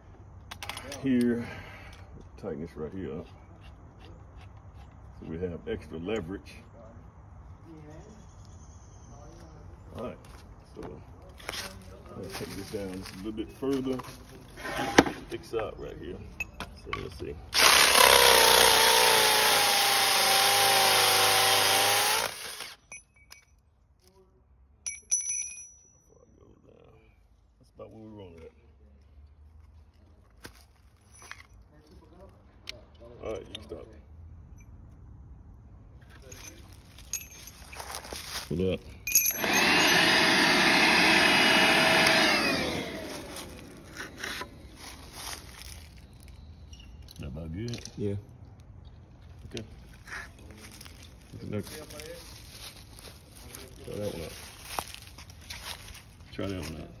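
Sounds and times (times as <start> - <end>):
hammer drill grinding into concrete: 17.6 - 22.9, 39.1 - 44.5.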